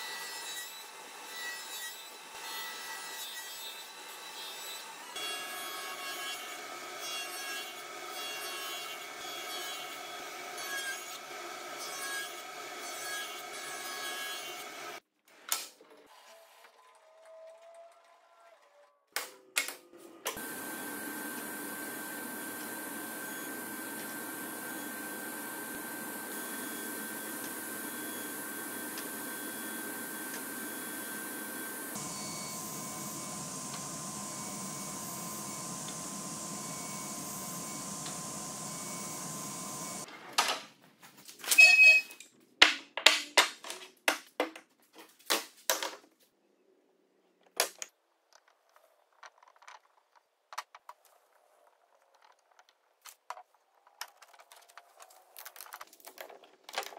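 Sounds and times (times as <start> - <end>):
table saw running with high whine: 20.4 - 40.1.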